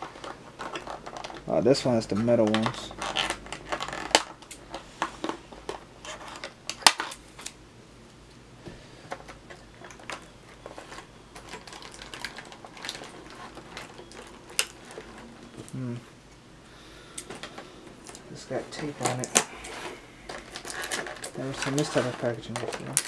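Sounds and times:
plastic packaging clicking: 0:09.1 - 0:15.8, 0:17.1 - 0:23.0.

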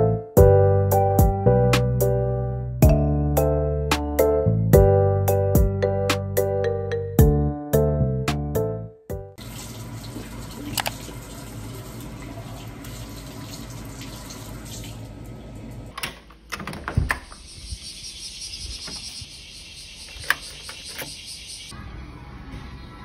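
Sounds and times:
tap water running into basin: 0:09.4 - 0:15.4
door handle and lock clicks: 0:15.9 - 0:17.4, 0:20.1 - 0:21.2.

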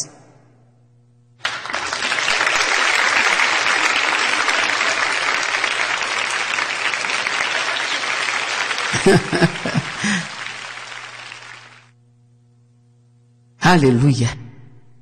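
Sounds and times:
audience applause: 0:01.4 - 0:11.9.

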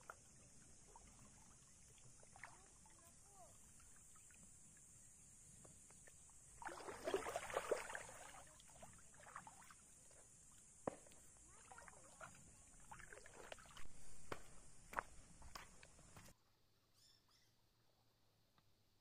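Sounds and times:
water sloshing and splashing: 0:00.0 - 0:05.0, 0:05.9 - 0:14.1.

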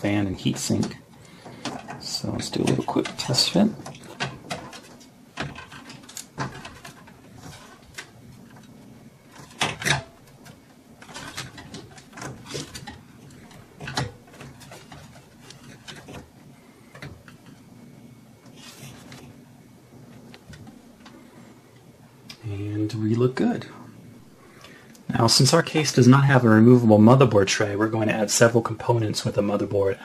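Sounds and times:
light clicks and knocks: 0:00.4 - 0:17.6.

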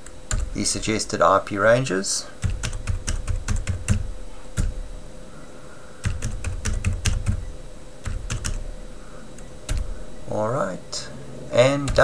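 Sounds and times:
keyboard typing clicks: 0:00.0 - 0:00.6, 0:02.4 - 0:04.8, 0:06.0 - 0:08.7, 0:09.4 - 0:10.0, 0:11.8 - 0:12.0.

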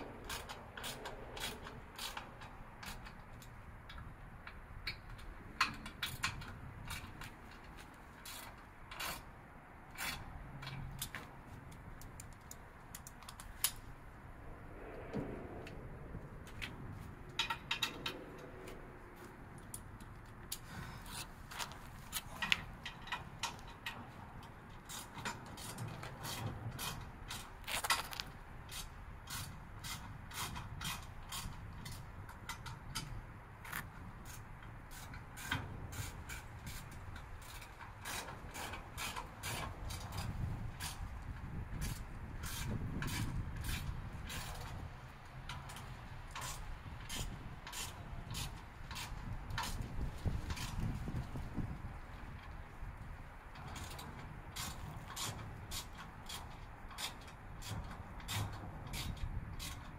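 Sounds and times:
hand tool clicking and creaking: 0:00.0 - 0:14.1, 0:16.4 - 0:59.9
hand tools clicking and tapping: 0:17.3 - 0:41.0.

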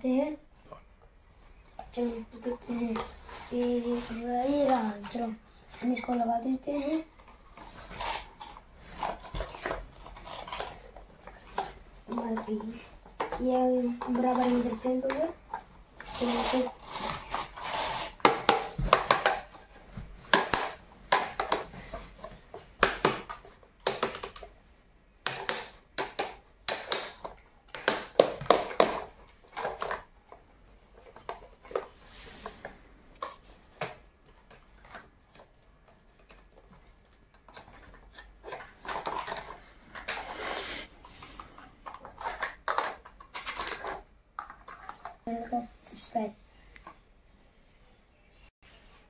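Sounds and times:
plastic toy clicking and rattling: 0:06.8 - 0:19.5, 0:33.2 - 0:40.3, 0:41.4 - 0:45.2.

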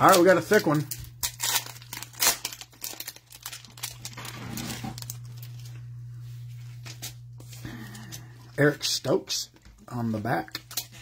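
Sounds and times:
foil pack tearing and crinkling: 0:00.0 - 0:05.8, 0:10.4 - 0:11.0.

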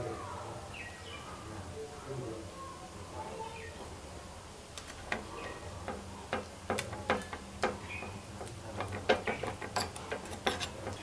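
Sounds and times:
steel spoon tapping a steel tin: 0:05.1 - 0:11.0.

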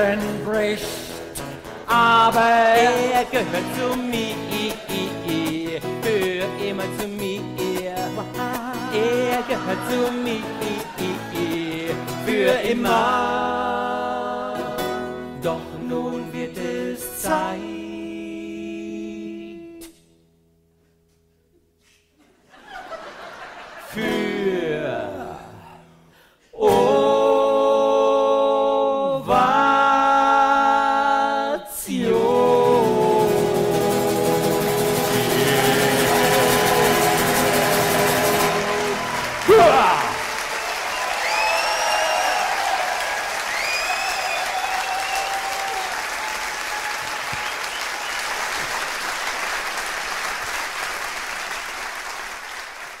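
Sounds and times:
men singing long held notes: 0:08.5 - 0:19.1, 0:26.6 - 0:40.3
audience applauding: 0:34.7 - 0:53.0.

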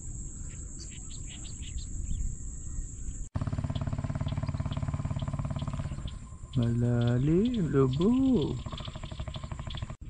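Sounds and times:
crickets chirping: 0:00.0 - 0:10.0
low pulsing drone: 0:03.0 - 0:10.0.

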